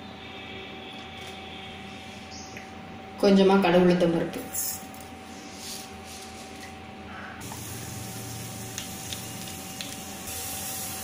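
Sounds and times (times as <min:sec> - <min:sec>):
seeds sizzling in hot oil: 0:07.4 - 0:11.0.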